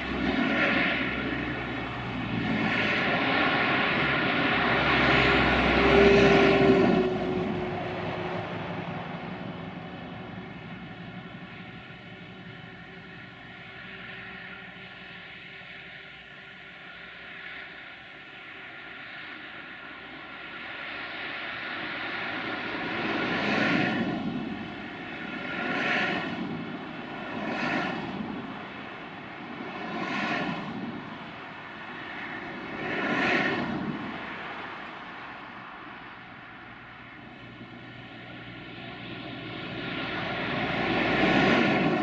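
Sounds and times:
locomotive diesel engine under load: 0.0 - 17.4.

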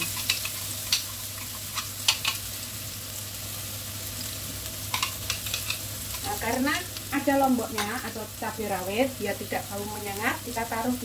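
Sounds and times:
paste sizzling in hot oil: 0.0 - 11.0
sharp clicks in pan: 0.1 - 1.1.

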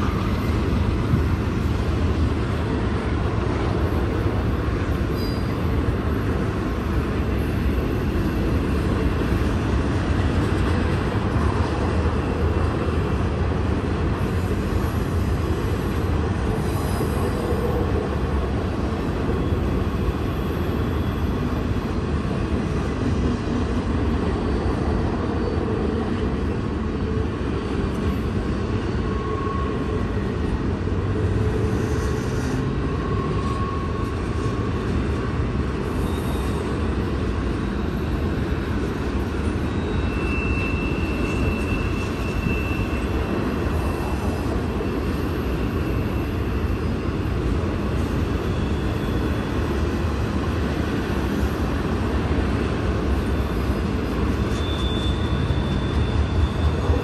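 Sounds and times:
train wheels rumbling on rail: 0.0 - 57.0
wheel squeals: 5.1 - 5.8, 35.8 - 37.0, 37.6 - 49.9, 52.6 - 57.0.

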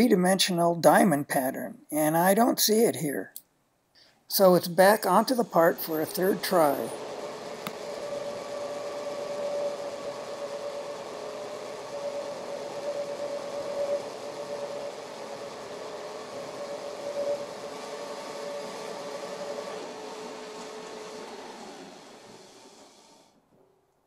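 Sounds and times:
metal lathe running: 4.4 - 23.2.

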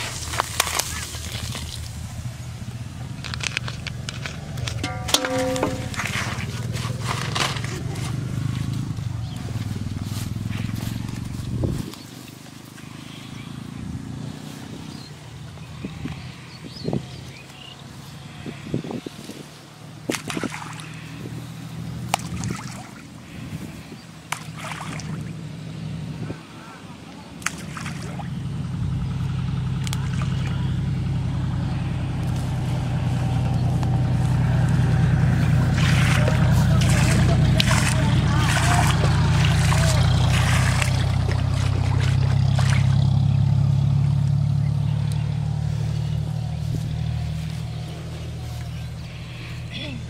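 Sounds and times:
water splashing and sloshing: 0.0 - 2.6, 3.2 - 13.0, 20.0 - 21.2, 22.0 - 25.5, 27.4 - 28.4, 29.7 - 30.6, 34.4 - 43.4
low engine-like hum: 0.0 - 18.5, 19.6 - 50.0
fish splashing: 4.4 - 8.5, 20.1 - 21.0, 22.1 - 23.1, 24.3 - 25.4, 27.4 - 28.4, 34.6 - 43.4.

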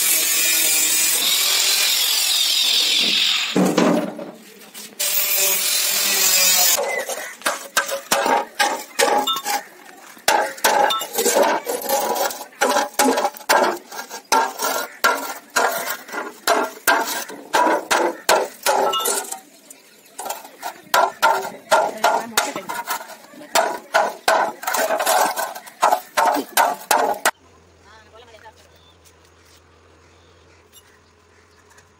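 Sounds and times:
angle grinder cutting steel: 0.0 - 3.6, 5.0 - 9.7, 10.3 - 19.4
hammer striking sheet steel: 6.3 - 9.6, 10.3 - 19.4, 20.2 - 27.3.

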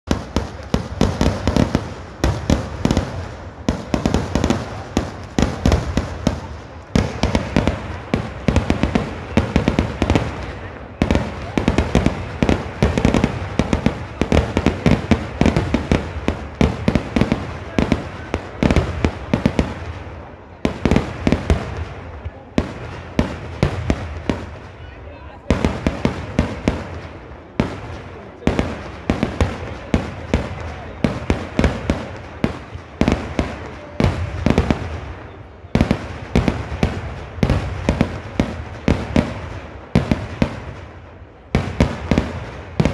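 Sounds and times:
firecracker bangs: 0.1 - 20.0.

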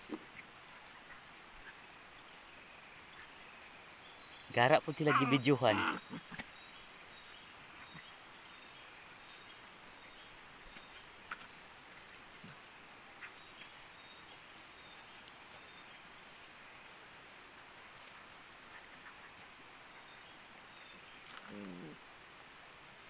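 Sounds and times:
puppies rustling in dry leaves: 0.0 - 21.4.

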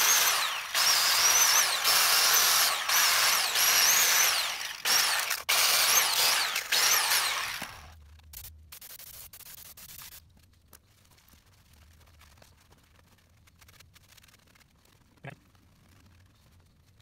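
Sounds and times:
angle grinder wire wheel whine: 0.0 - 7.9.

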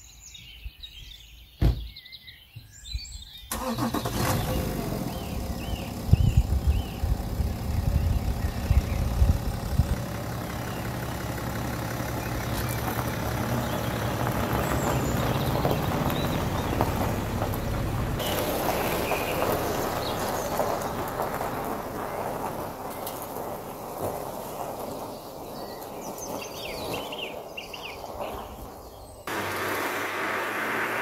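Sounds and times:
diesel engine running: 3.5 - 25.5, 29.3 - 31.0
tyres crunching on gravel: 3.6 - 31.0.

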